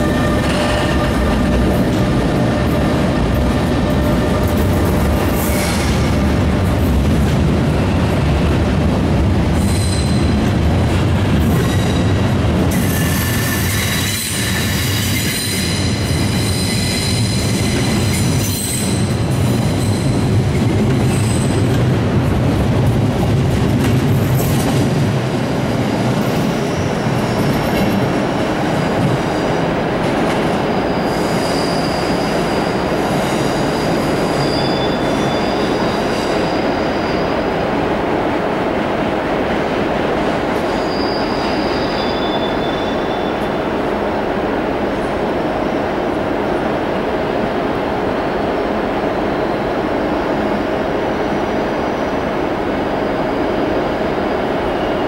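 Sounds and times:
rumble of wheels on rail: 0.0s - 55.0s
high thin wheel squeal: 30.9s - 32.4s, 33.7s - 37.3s, 40.7s - 43.3s.

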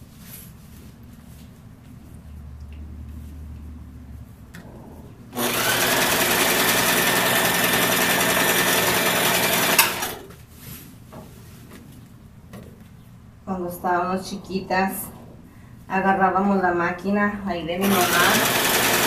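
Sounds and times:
sewing machine running: 5.3s - 10.3s, 17.8s - 19.0s.

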